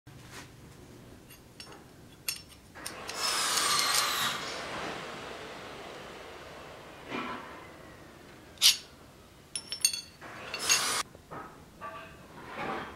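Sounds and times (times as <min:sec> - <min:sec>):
light metal clinks: 0:09.5 - 0:10.8
metal-on-metal scrape: 0:10.3 - 0:11.0, 0:11.8 - 0:12.9.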